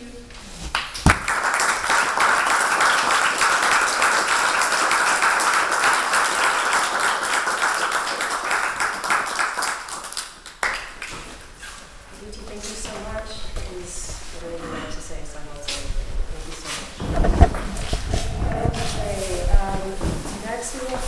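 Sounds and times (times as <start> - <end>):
audience applauding: 0.8 - 11.1.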